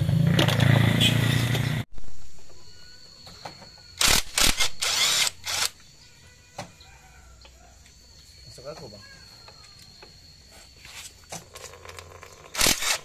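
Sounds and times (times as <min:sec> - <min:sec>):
power wrench spinning: 0:04.0 - 0:05.8, 0:11.5 - 0:13.0.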